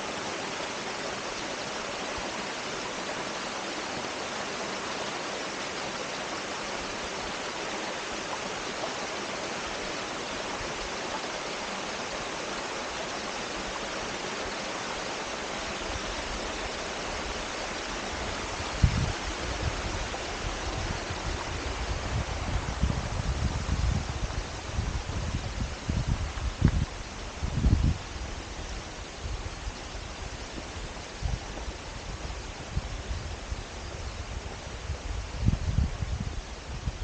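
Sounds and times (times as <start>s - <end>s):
stream rushing over rocks: 0.0s - 37.0s.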